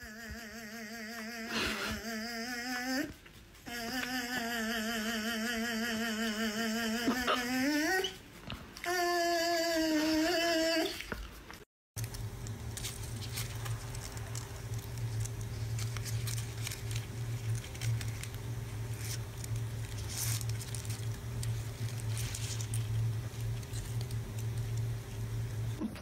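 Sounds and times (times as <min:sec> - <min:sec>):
steady low hum: 0:11.4 - 0:26.0.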